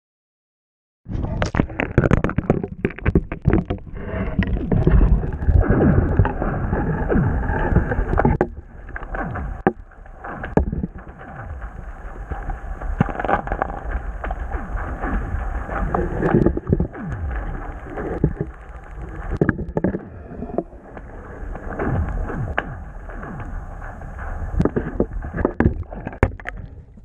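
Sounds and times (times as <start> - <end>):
muffled water sloshing underwater: 1.1 - 27.0.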